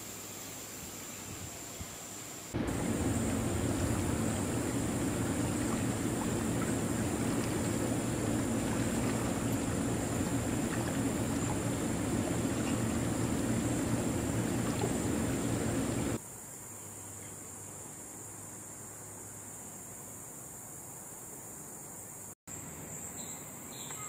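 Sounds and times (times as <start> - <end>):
creek water trickling over stones: 2.6 - 16.2.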